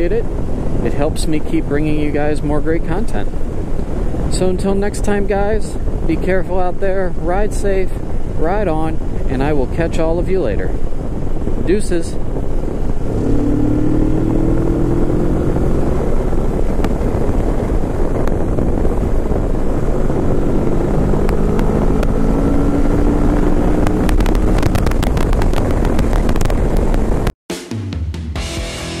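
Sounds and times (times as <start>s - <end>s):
wind noise: 0.0s - 27.4s
motorcycle engine at speed: 10.8s - 27.3s
sharp crackles: 11.0s - 27.4s.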